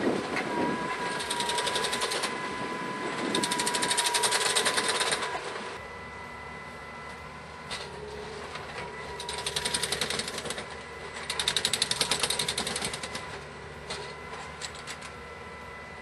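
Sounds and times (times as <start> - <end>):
machine whine: 0.0 - 16.0
rapid mechanical clatter: 1.1 - 2.3, 3.2 - 5.6, 9.2 - 13.3.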